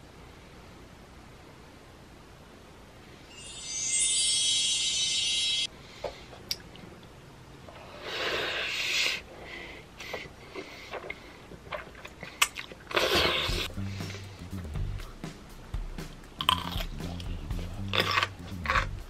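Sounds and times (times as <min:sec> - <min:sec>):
high steady tone: 0:03.2 - 0:05.7
soft chewing and mouth clicks: 0:10.0 - 0:13.6
noodles slurped: 0:10.5 - 0:13.7.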